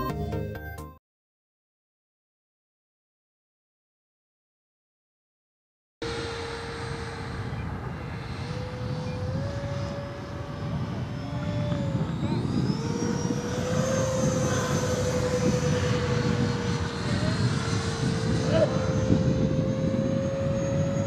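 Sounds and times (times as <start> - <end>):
model jet ducted-fan whine: 6.0 - 21.0.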